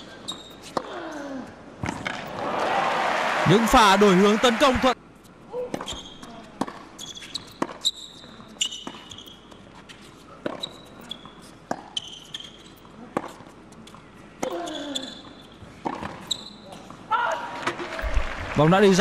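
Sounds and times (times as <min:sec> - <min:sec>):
shoes squeaking on hard court: 0:00.0 - 0:01.0, 0:05.2 - 0:17.0
person speaking: 0:03.5 - 0:05.0.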